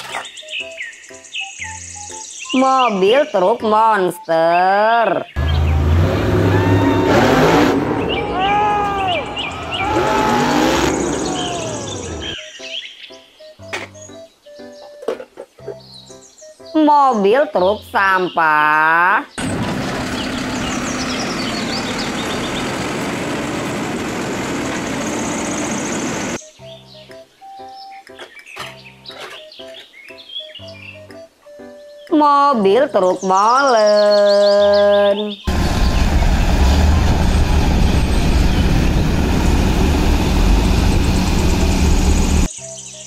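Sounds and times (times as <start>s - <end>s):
garbage truck diesel engine: 5.4s - 12.4s, 19.4s - 26.4s, 35.5s - 42.5s.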